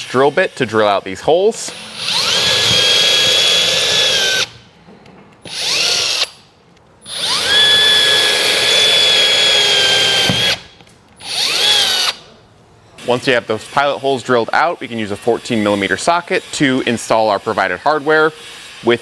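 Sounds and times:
cordless drill drilling into wood: 1.6 - 4.5, 5.5 - 6.3, 7.1 - 10.6, 11.2 - 12.2.

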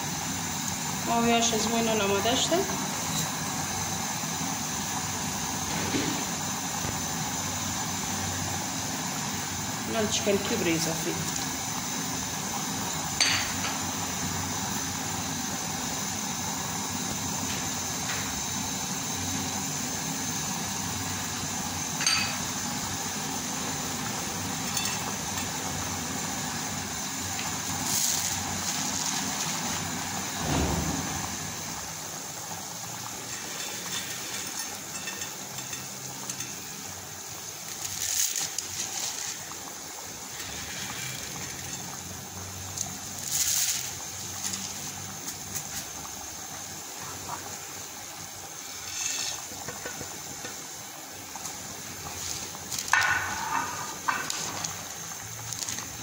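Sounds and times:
soup boiling bubbling: 0.0 - 56.0
metal clinking on pot: 13.2 - 13.7, 22.0 - 22.4, 24.6 - 25.5, 33.3 - 36.6.

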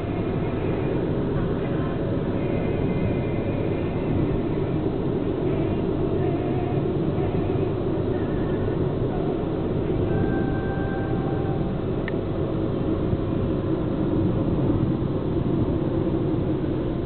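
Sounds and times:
car cabin road and engine noise: 0.0 - 17.0.

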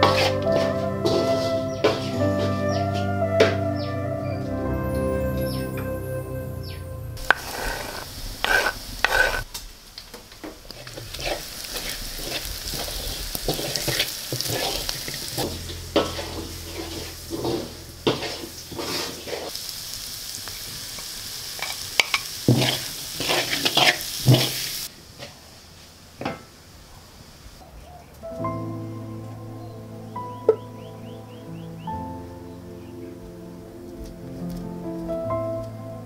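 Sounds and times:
beans sizzling in a pan: 7.2 - 25.9.

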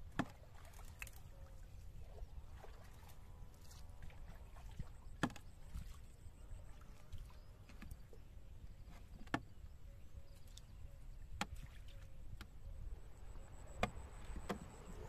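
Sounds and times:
wooden boat knocks and clicks: 0.0 - 0.4, 5.2 - 5.5, 8.9 - 9.6, 11.3 - 11.6, 13.7 - 15.0.

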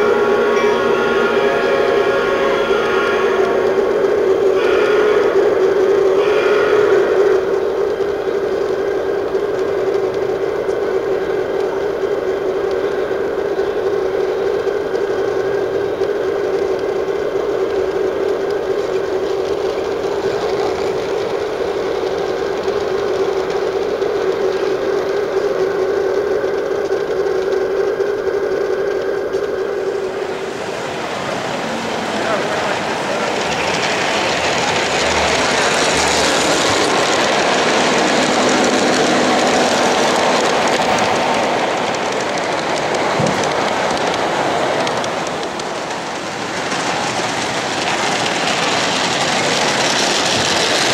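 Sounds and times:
model trains humming: 0.0 - 50.9.

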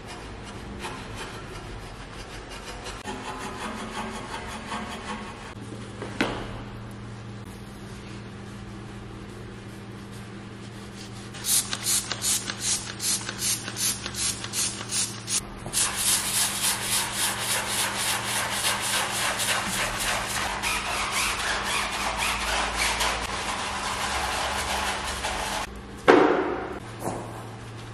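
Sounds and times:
brush scrubbing tyre: 15.8 - 25.7.

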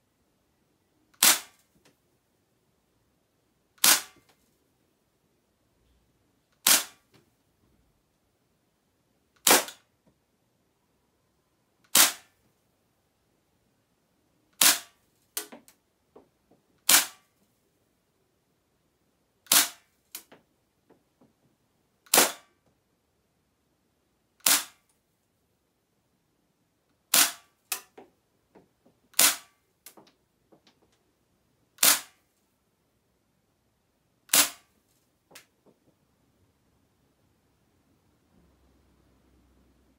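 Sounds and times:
airsoft pistol shots: 1.2 - 1.6, 3.8 - 4.2, 6.6 - 7.0, 11.9 - 12.3, 14.6 - 15.0, 16.9 - 17.2, 19.5 - 19.8, 22.1 - 22.5, 24.4 - 24.8, 27.1 - 27.5, 29.2 - 29.6, 31.8 - 32.2, 34.3 - 34.7.

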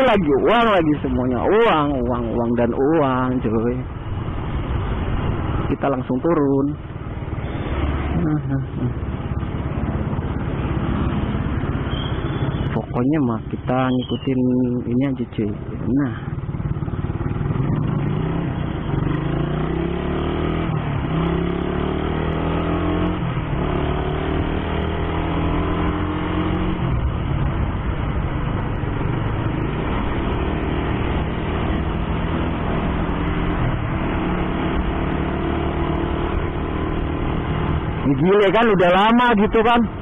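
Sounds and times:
rushing road noise: 0.0 - 40.0
motorcycle engine running: 15.6 - 40.0.

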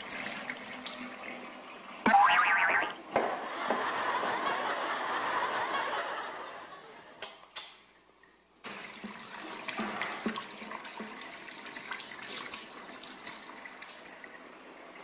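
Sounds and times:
tap water running into basin: 8.6 - 15.0.

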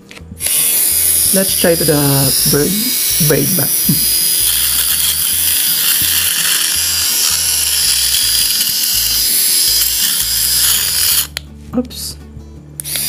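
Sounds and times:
electric shaver running: 0.0 - 11.4, 12.8 - 13.0.

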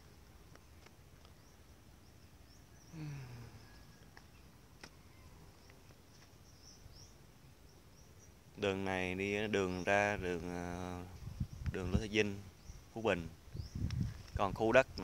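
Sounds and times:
faint high chirps: 1.3 - 8.4.

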